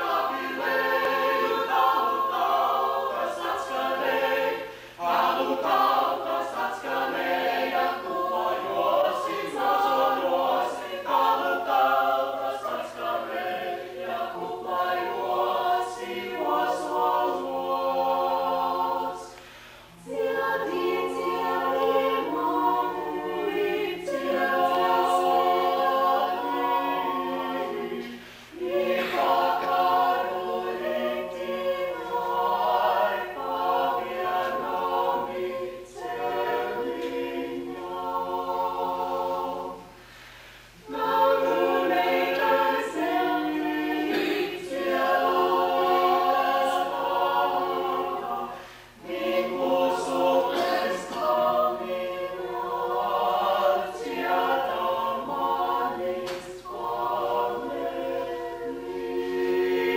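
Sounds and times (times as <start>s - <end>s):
vocal ensemble singing a cappella: 0.0s - 59.9s.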